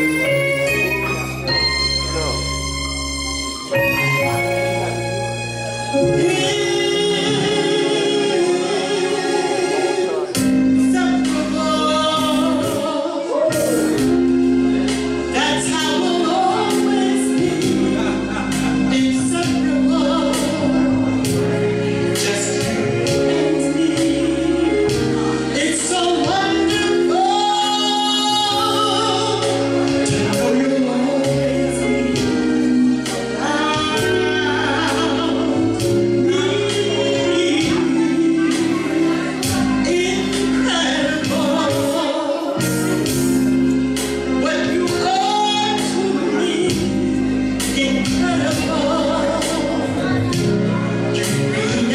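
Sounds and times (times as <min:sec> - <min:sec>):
instrumental accompaniment: 0:00.0 - 0:51.9
woman singing: 0:06.0 - 0:09.7, 0:10.8 - 0:14.0, 0:15.4 - 0:18.1, 0:22.2 - 0:42.9, 0:44.4 - 0:47.0, 0:47.7 - 0:50.5, 0:51.2 - 0:51.9.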